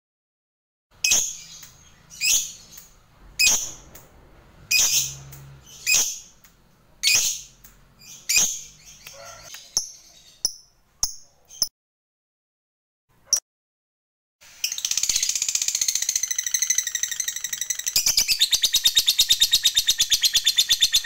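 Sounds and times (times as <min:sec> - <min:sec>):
lovebird shrill chirps: 0:04.7 - 0:06.3, 0:07.0 - 0:11.7.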